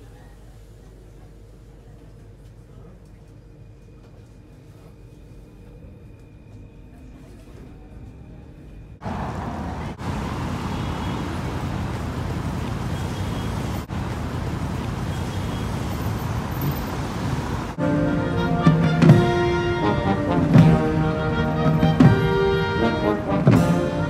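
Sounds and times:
road traffic: 9.0s - 24.0s
marching band playing: 17.7s - 24.0s
snare and bass drums beating: 18.7s - 19.6s, 21.8s - 22.6s, 23.3s - 24.0s.

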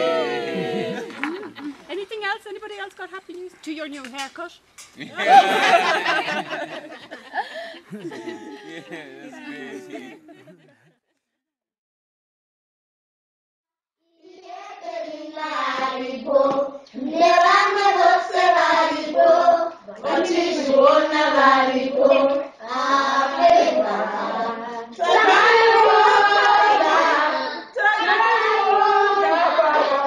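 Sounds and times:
children singing together: 0.0s - 1.6s, 14.2s - 30.0s.

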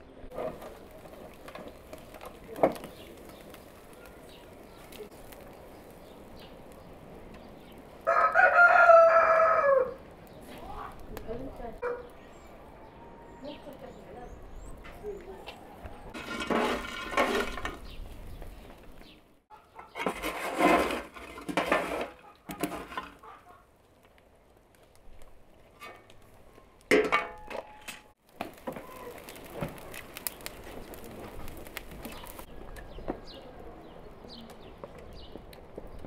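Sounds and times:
coals crackling and popping: 0.1s - 36.0s
metal clanking and scraping: 16.0s - 18.0s, 19.7s - 23.4s, 25.7s - 26.2s, 26.9s - 28.2s.

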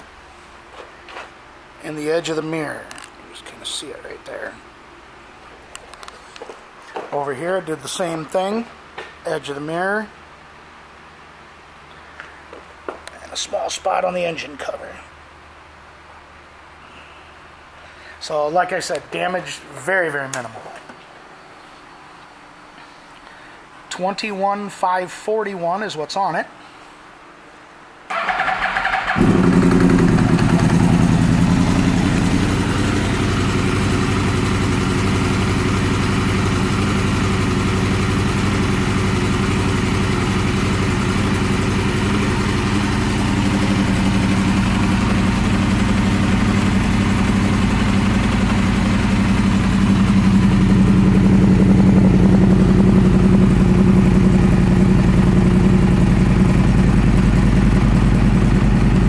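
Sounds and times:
motorcycle engine idling: 28.1s - 59.0s.

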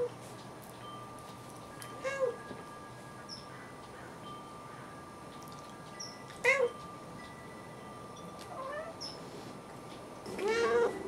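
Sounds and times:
cat meowing: 10.3s - 11.0s.

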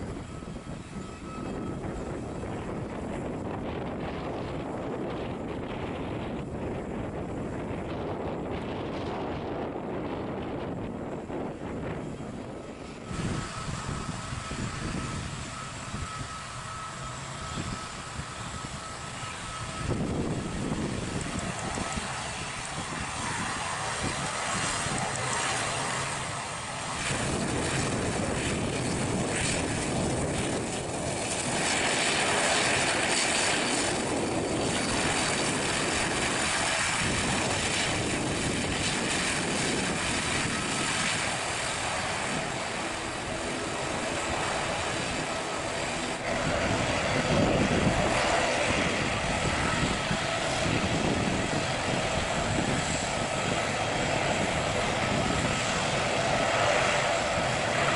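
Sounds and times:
high engine whine: 0.0s - 57.9s
propeller drone: 0.0s - 57.9s.

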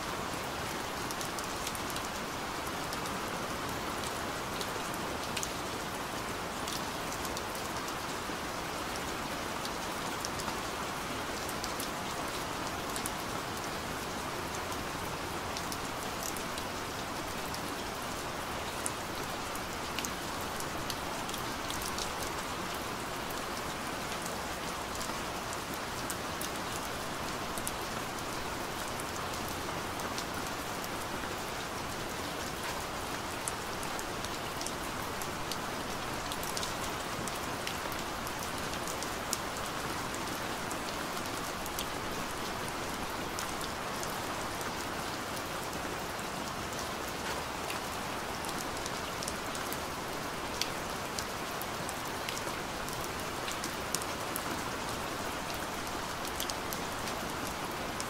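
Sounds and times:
steady rain hiss: 0.0s - 58.0s.

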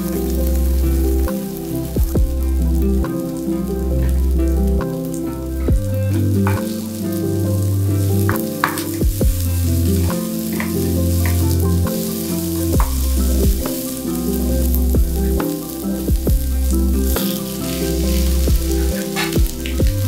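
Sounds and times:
background music with bass line: 0.0s - 20.0s
food sizzling in oil: 6.2s - 16.1s, 16.7s - 20.0s.

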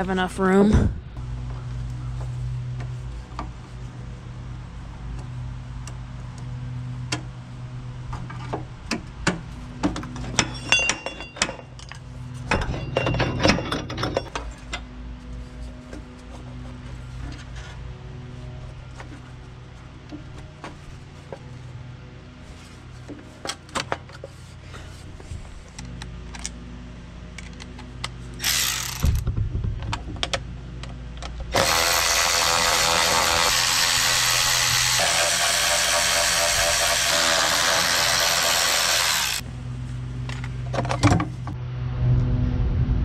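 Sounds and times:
electric ratchet unscrewing bolts: 27.4s - 29.2s.

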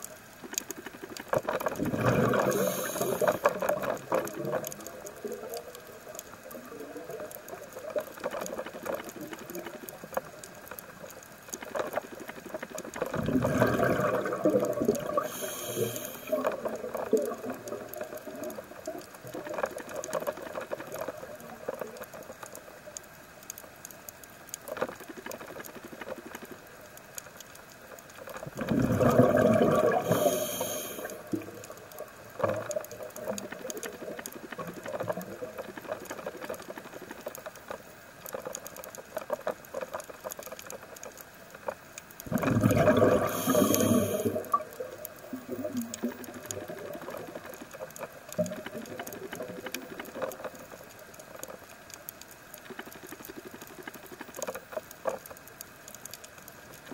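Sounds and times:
crackle of fine clicks: 0.0s - 56.9s
scuba exhaled bubbles rushing: 1.4s - 5.6s, 13.0s - 18.6s, 28.4s - 31.7s, 42.2s - 47.6s.

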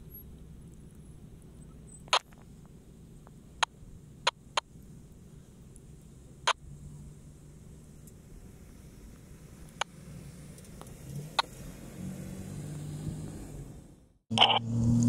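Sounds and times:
distant suv engine running: 0.0s - 15.0s
sharp clicks: 3.2s - 4.8s.

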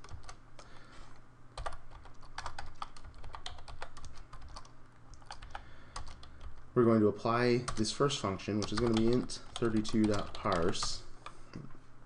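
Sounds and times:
computer keyboard typing: 0.0s - 0.7s, 1.6s - 6.6s, 7.7s - 8.0s, 8.6s - 11.4s.

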